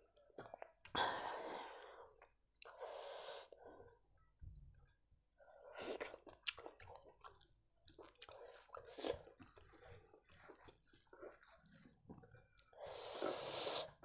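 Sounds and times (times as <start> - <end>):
person eating by hand: 5.6 - 14.0.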